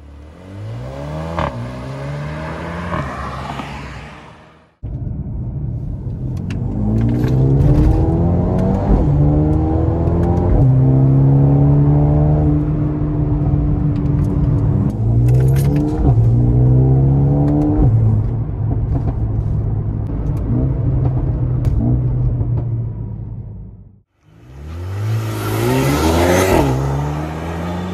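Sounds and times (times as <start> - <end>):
car engine accelerating through gears: 0.0 - 4.4, 6.4 - 19.2, 24.3 - 27.9.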